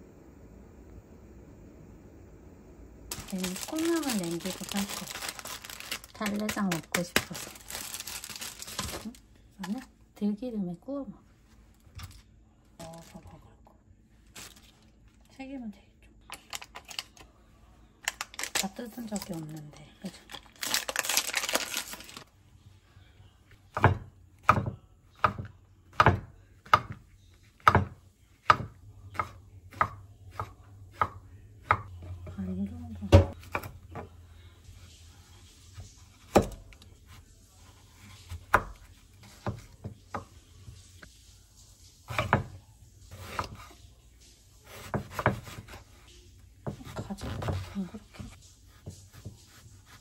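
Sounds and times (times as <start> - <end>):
plastic wrap crinkling: 3.1 - 9.9, 11.6 - 13.4, 14.2 - 15.3, 16.3 - 17.3, 18.0 - 22.3.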